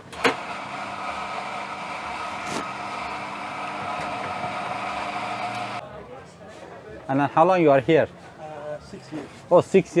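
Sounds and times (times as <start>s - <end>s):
espresso machine pump humming: 0.2s - 5.8s.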